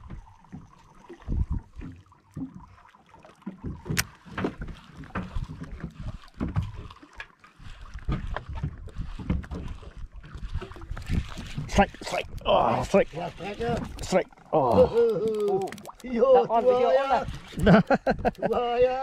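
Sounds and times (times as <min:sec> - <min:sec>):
water slapping against boat hull: 0:00.0 - 0:14.5
wind on microphone: 0:01.2 - 0:01.8, 0:07.9 - 0:14.1.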